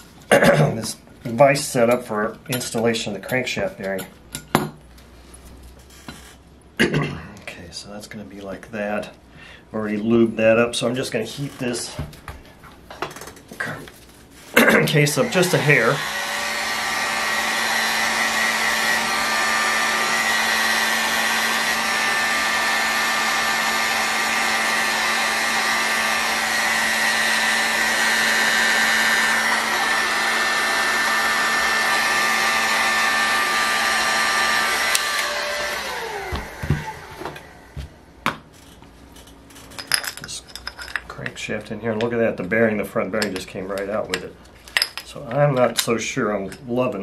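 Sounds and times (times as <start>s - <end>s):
heat gun blowing: 14.5s - 38.0s.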